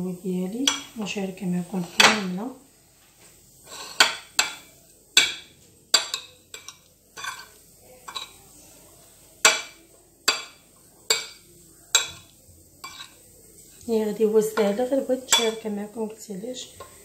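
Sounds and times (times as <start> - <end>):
metal spoon clinking on ceramic bowl: 5.2 - 7.5, 10.3 - 12.2, 14.6 - 15.6.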